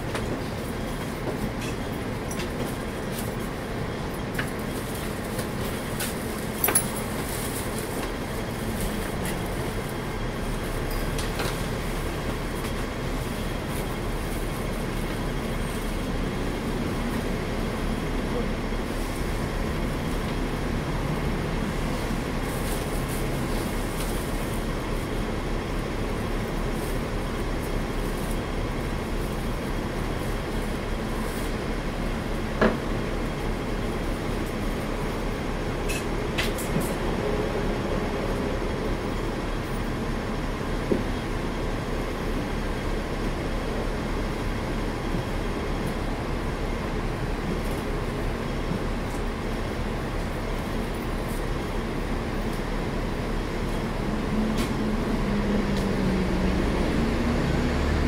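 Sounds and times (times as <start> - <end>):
tram rumble and hum: 0.0 - 58.0.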